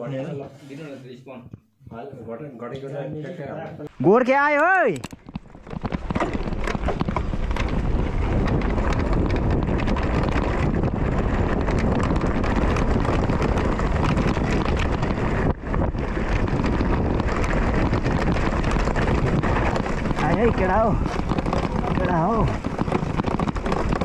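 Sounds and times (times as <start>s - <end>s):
bike rattling and knocking: 5.0s - 24.0s
wind buffeting microphone: 5.1s - 24.0s.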